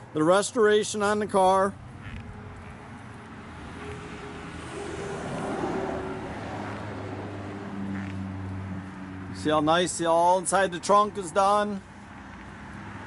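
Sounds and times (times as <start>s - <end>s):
road traffic hum: 0.0s - 13.0s
vehicle passing: 1.7s - 9.9s, 11.5s - 13.0s.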